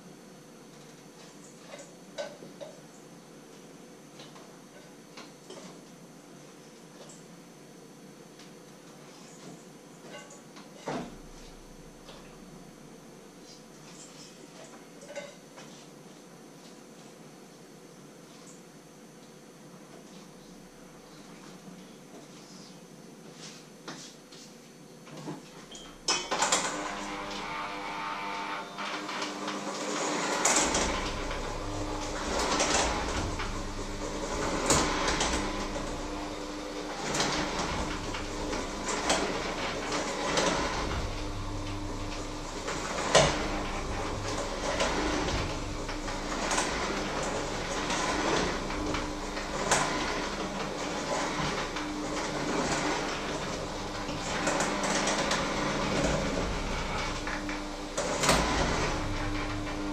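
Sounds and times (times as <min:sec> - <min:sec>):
electric hand mixer whirring: 0:26.2 - 0:59.9.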